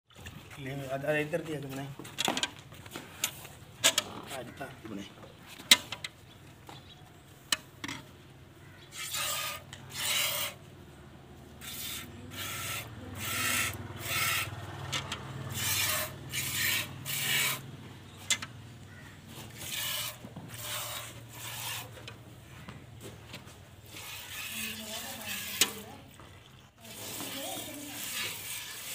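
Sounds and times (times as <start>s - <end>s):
milk squirting into metal pail: 23.8s - 28.9s.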